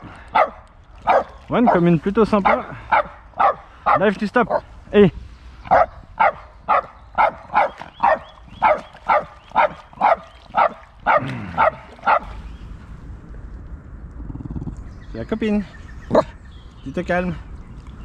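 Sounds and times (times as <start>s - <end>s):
dog barking in high yaps: 0.4s - 1.3s, 2.5s - 4.6s, 5.7s - 12.3s.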